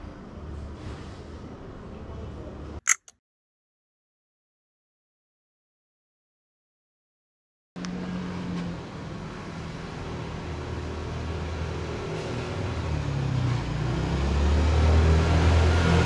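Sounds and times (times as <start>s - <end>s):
vehicle engine hum: 7.8s - 16.0s.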